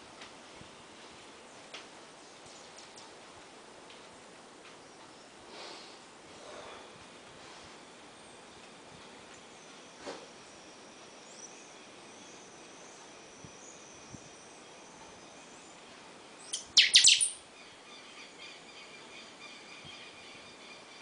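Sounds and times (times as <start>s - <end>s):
caged bird calling: 16.4s - 17.6s.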